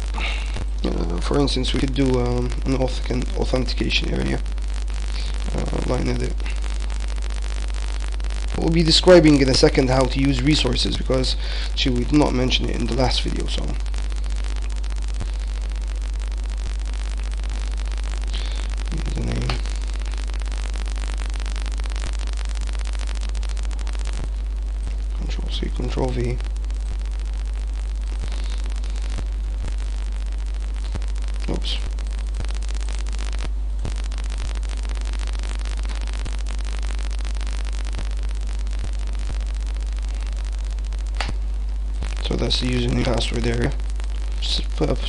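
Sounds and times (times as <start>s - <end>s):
low electrical hum: 0.0s - 45.0s
static hiss: 0.0s - 45.0s
faint clicks: 26.4s - 41.4s.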